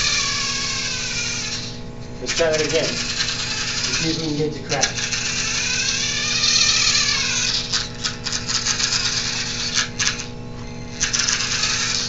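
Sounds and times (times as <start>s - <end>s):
electric toy car motor whining: 0.0s - 12.0s
rapid stuttering clicks and rattles: 2.5s - 4.2s, 4.8s - 10.3s, 11.0s - 12.0s.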